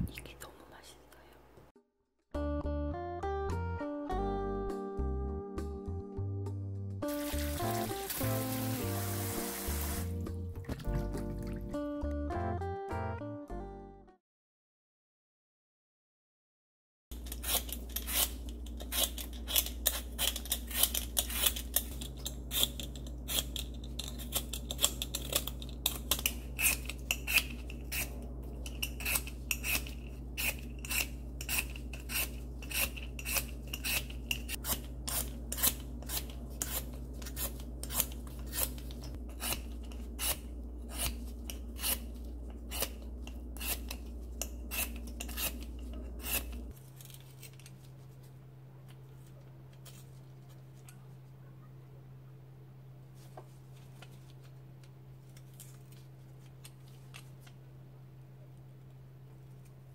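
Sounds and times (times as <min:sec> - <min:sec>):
peeler scraping potato skin: 0:17.1 - 0:47.8.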